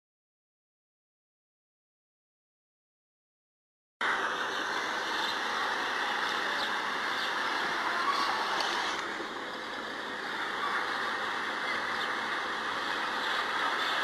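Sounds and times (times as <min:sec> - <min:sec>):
noisy drone: 0:04.0 - 0:14.0.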